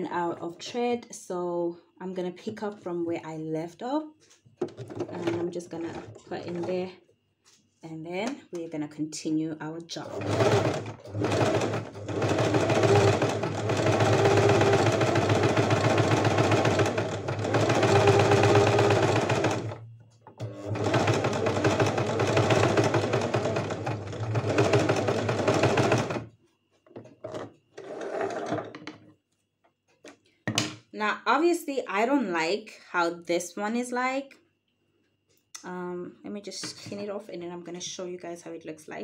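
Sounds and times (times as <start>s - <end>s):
sewing machine running: 4.7s - 6.9s, 10.0s - 26.3s, 27.8s - 28.7s.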